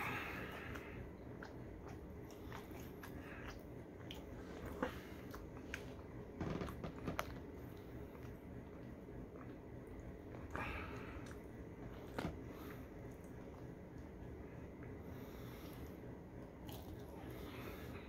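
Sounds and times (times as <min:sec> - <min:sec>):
person chewing: 0:00.5 - 0:06.2, 0:16.6 - 0:17.4.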